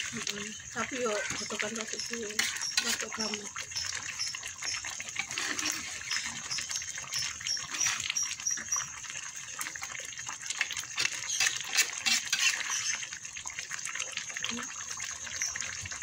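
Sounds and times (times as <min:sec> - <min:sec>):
sauce crackling as it simmers: 0:00.0 - 0:16.0
metal spatula scraping a wok: 0:01.0 - 0:03.2, 0:03.8 - 0:08.7, 0:11.0 - 0:13.0.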